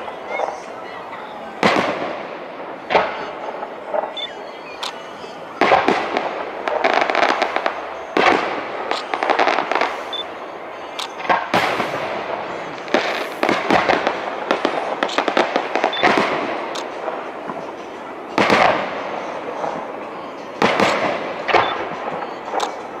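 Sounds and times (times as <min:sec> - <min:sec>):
firework crackles: 0:00.0 - 0:23.0
firework shells bursting: 0:10.9 - 0:23.0.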